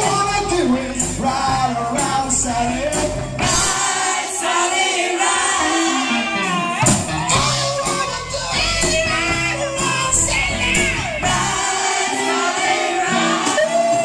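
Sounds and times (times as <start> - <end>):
man singing lead: 0.0 - 3.8, 5.6 - 11.6
live rock band playing: 0.0 - 4.0, 5.2 - 14.0
women singing backing harmonies: 3.4 - 7.7, 8.4 - 14.0.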